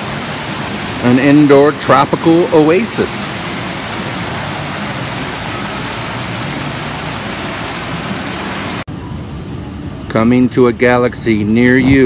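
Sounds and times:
waterfall pouring into pool: 0.0s - 8.9s.

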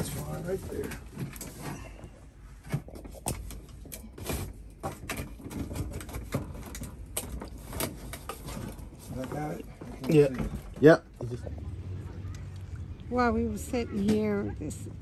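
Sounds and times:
metal dryer casing knocking and scraping: 4.1s - 10.8s.

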